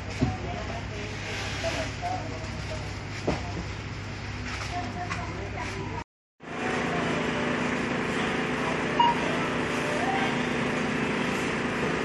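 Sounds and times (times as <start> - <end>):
hum of store machinery: 0.0 - 12.0
short electronic beep: 9.0 - 9.4.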